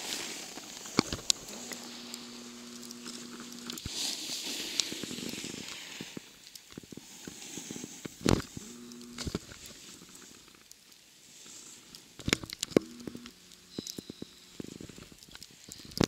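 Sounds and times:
snowboard scraping over snow: 0.0s - 10.3s
scattered clicks: 0.6s - 3.9s, 4.6s - 7.3s, 8.0s - 11.0s, 11.9s - 16.0s.

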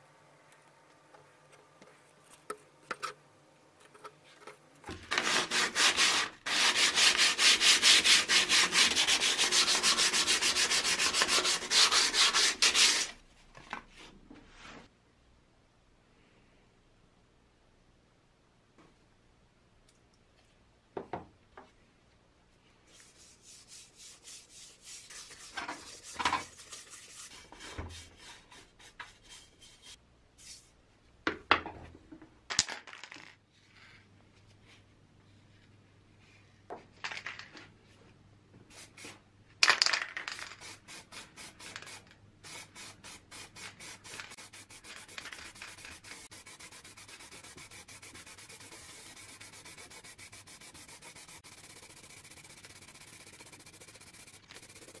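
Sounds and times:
aerosol can spraying: 40.6s - 55.0s
rubbing on steel helmet: 43.6s - 55.0s.

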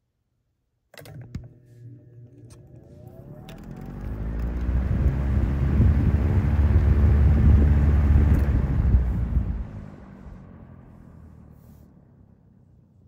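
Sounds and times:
table fan airflow rushing: 2.8s - 10.4s.

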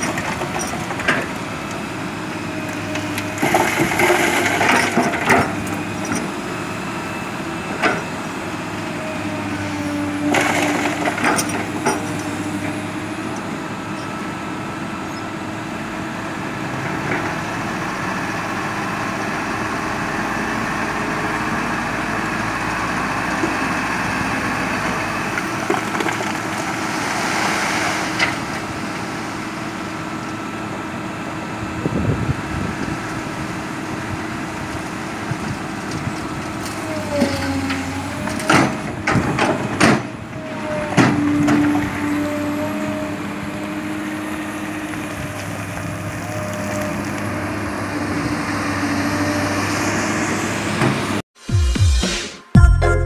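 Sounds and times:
diesel truck engine running: 0.0s - 51.2s
rocky soil sliding out: 3.0s - 6.3s, 10.2s - 12.3s, 25.2s - 29.4s.

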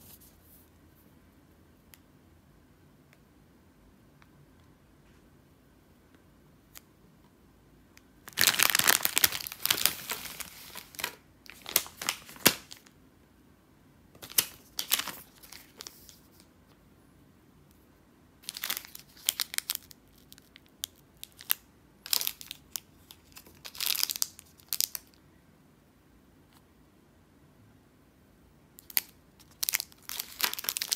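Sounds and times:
plastic candy wrappers crinkling: 8.2s - 12.9s, 14.2s - 16.5s, 18.4s - 25.2s, 28.8s - 30.9s.

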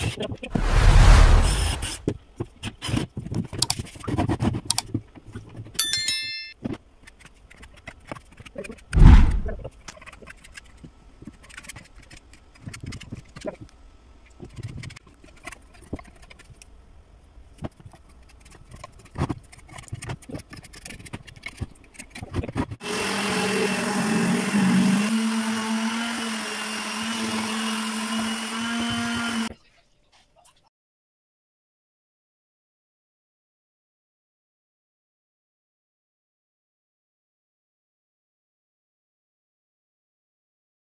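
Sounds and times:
electric palm sander running: 22.8s - 29.5s.

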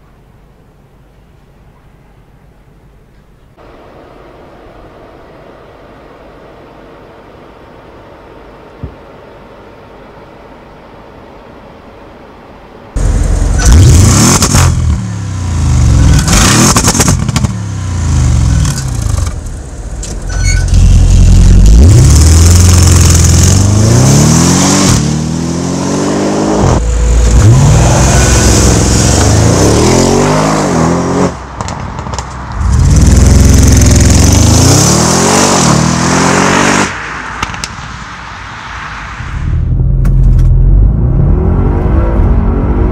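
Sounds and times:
exhaust pops and crackles: 16.1s - 17.5s, 31.6s - 32.5s
car engine revving hard: 32.6s - 36.9s.

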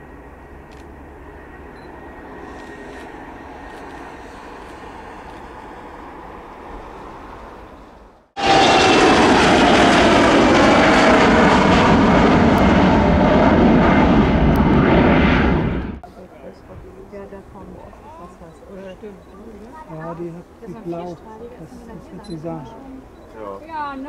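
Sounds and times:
jet engines climbing with whine: 0.0s - 19.1s
faint jet sound: 0.0s - 24.0s.

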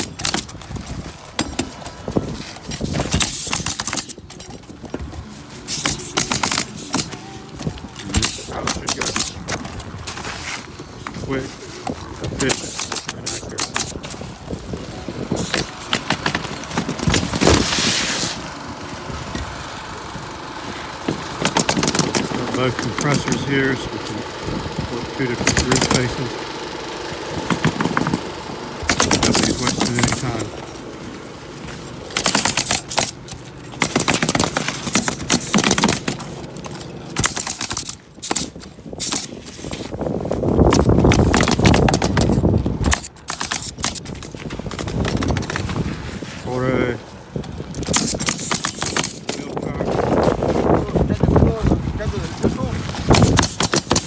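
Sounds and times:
pneumatic nailers firing: 0.0s - 10.6s, 11.8s - 14.2s, 15.2s - 18.4s, 21.0s - 24.3s, 25.0s - 26.4s, 27.3s - 30.8s, 32.0s - 40.0s, 40.6s - 45.8s, 47.7s - 49.6s, 53.1s - 54.0s.

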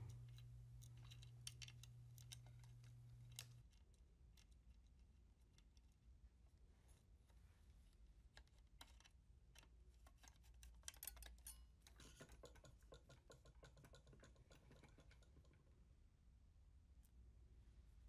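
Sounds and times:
faint light clicks and ticks: 0.0s - 6.1s.

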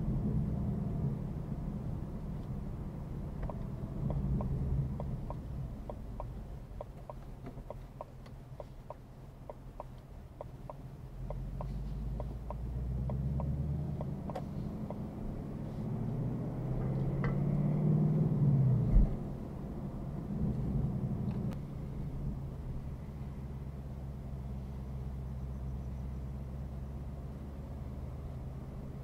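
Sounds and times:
car engine running at low revs: 0.0s - 29.0s
turn signal ticking: 3.2s - 15.2s.

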